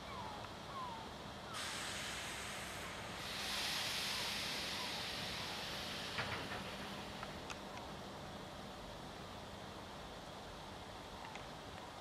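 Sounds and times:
train hiss: 1.4s - 10.4s.

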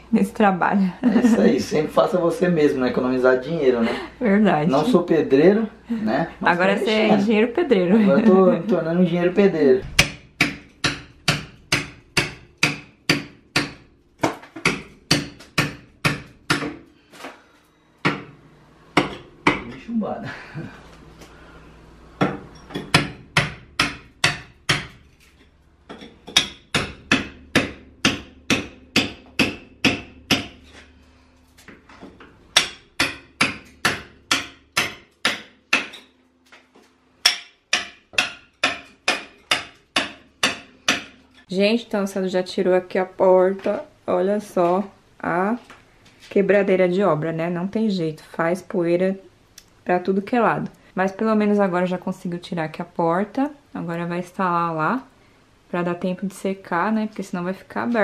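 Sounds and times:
hammer chipping brick: 9.9s - 16.9s, 22.2s - 25.2s, 25.9s - 30.8s, 32.5s - 36.1s, 37.2s - 41.2s.

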